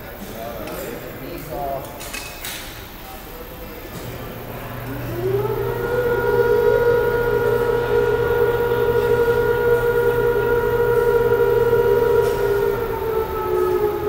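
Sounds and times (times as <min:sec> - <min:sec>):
low hum: 0:04.0 - 0:14.0
loud whine rising in pitch: 0:04.1 - 0:14.0.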